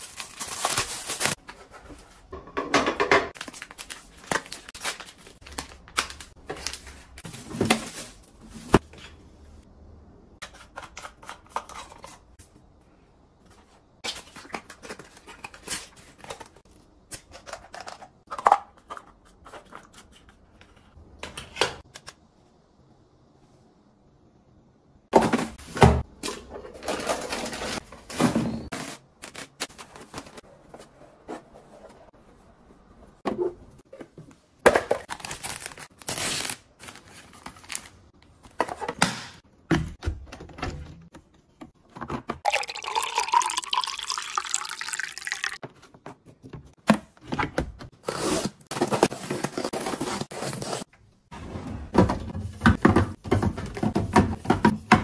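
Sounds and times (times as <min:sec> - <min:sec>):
plastic packaging rustling: 0:00.0 - 0:02.1
items knocking on plastic: 0:02.4 - 0:03.4, 0:52.0 - 0:55.0.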